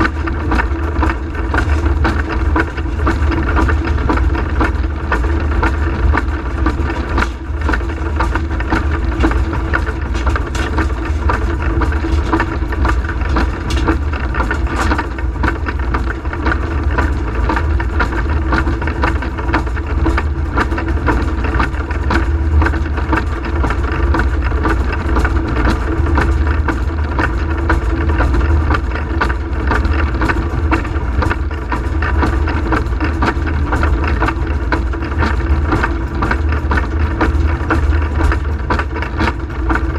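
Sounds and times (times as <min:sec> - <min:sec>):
steam locomotive rumble: 0:00.0 - 0:17.9
clicks and knocks: 0:06.7 - 0:16.6.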